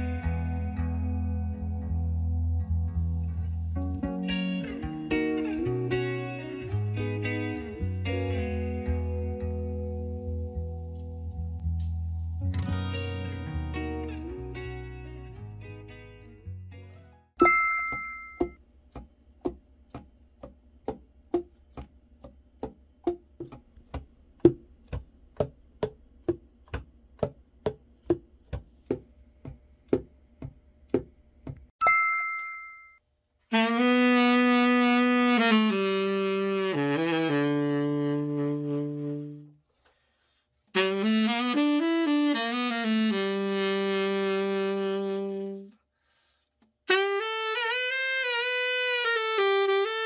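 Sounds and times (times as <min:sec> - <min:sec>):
short chime: 0:17.4 - 0:18.6, 0:31.8 - 0:33.0
tenor saxophone low notes: 0:33.5 - 0:39.6, 0:40.7 - 0:45.8, 0:46.9 - 0:50.0.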